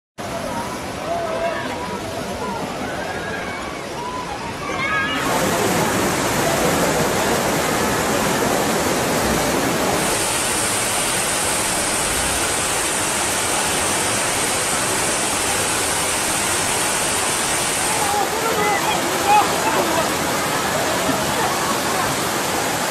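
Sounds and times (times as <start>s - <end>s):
floodwater rushing: 0.2s - 22.9s
high hiss: 9.9s - 19.7s.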